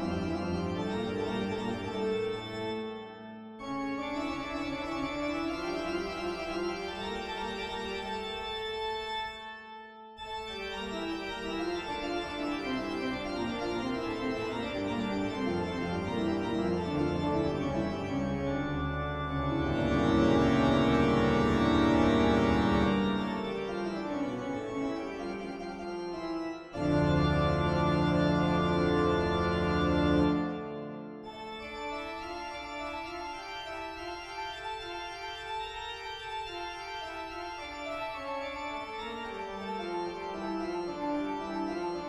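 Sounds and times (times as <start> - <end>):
organ music with sustained chords: 0.0 - 42.0.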